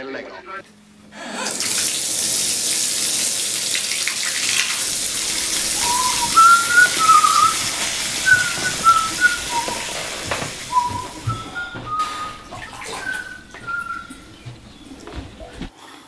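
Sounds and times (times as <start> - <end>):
bath tap running water: 1.2 - 15.7
person whistling a tune: 5.0 - 15.0.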